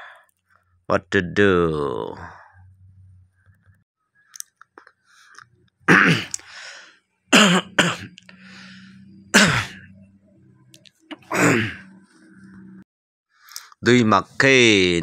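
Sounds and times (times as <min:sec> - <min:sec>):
person coughing: 0:05.9 - 0:06.4, 0:07.3 - 0:08.2, 0:09.3 - 0:09.9, 0:11.2 - 0:11.9.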